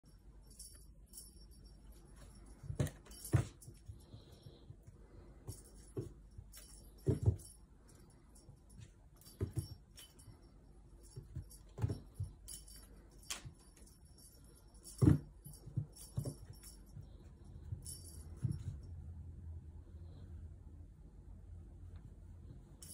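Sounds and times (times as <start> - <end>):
cat toy jingling: 5.4 - 18.9.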